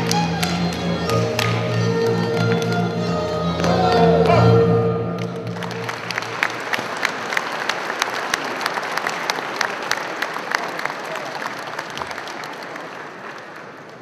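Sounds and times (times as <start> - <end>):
audience applause in echoing hall: 0.0 - 2.9, 5.2 - 14.0
folk dance music: 0.0 - 7.2.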